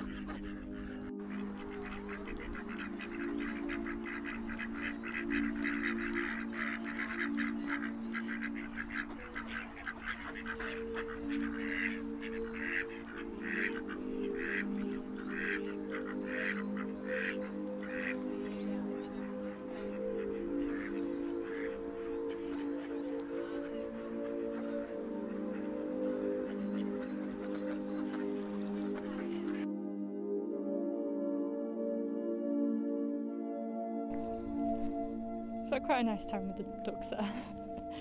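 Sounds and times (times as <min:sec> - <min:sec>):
ducks quacking: 0:00.0 - 0:29.7
music with slow held chords: 0:00.0 - 0:38.0.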